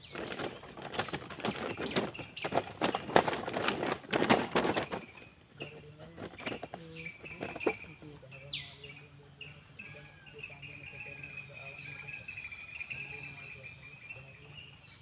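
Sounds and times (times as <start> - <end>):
loud rustling: 0.0 - 7.9
birds chirping: 0.0 - 15.0
high insect tone: 4.6 - 15.0.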